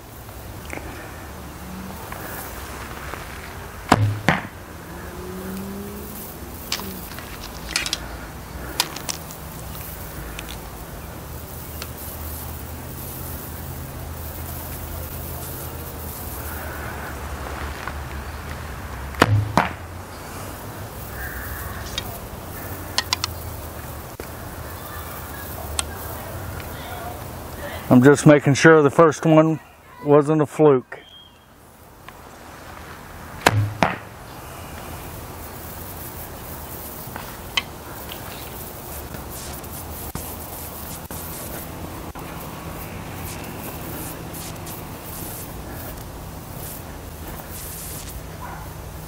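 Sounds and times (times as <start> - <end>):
arrow hitting carpet: 3.9 - 4.5
arrow impact thud: 3.9 - 4.6, 19.2 - 19.8, 33.4 - 34.1.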